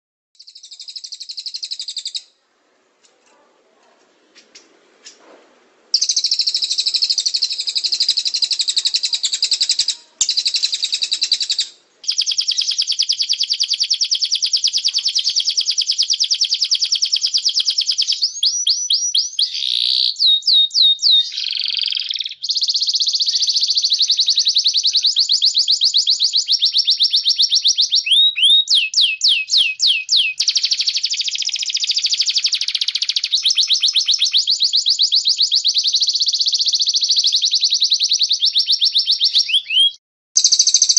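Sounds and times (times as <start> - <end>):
songbird trills and rattles: 3.0 - 5.2, 5.9 - 18.7, 40.4 - 40.9.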